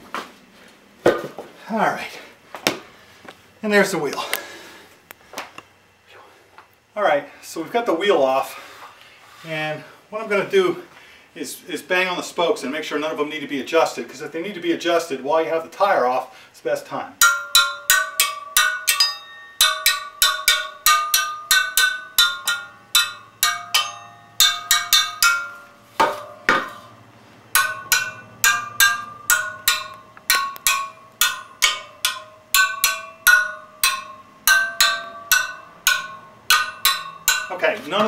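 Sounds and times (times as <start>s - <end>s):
screwdriver tapping ringing spokes: 17.2s - 26.6s, 27.6s - 37.6s.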